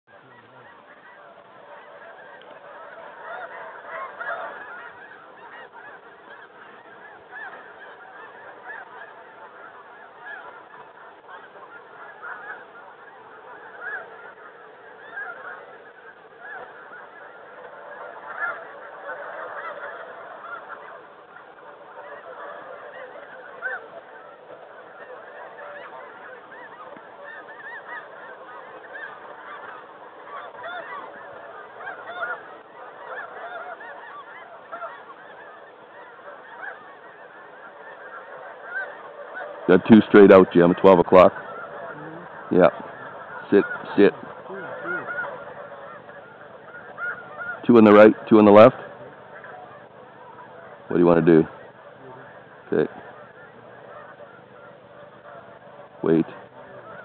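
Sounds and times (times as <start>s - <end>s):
geese honking in a flock: 0.1s - 57.0s.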